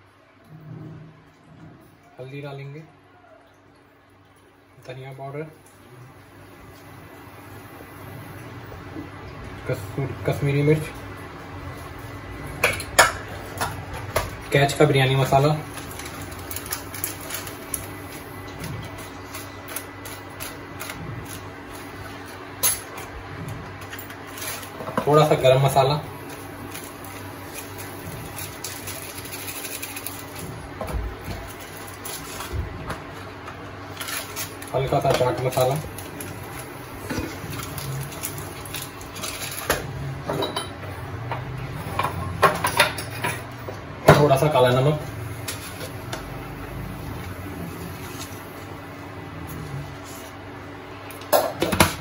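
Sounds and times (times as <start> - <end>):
steady low hum: 0.0 - 52.0
foil packet crinkling: 14.3 - 23.1, 23.8 - 39.7
kitchen things clinking: 37.0 - 44.5.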